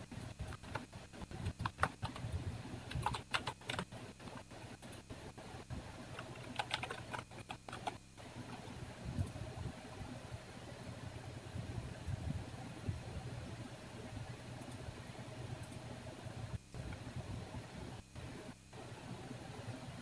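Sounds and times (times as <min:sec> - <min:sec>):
keyboard typing: 0:00.2 - 0:05.0, 0:05.8 - 0:09.4.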